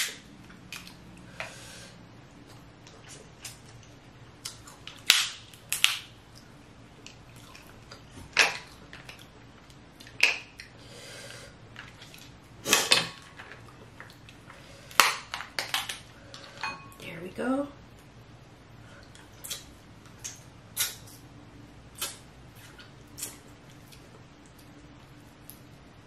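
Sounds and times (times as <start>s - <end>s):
crab shells cracking: 3.4s - 6.2s, 8.3s - 10.6s, 12.9s - 16.1s.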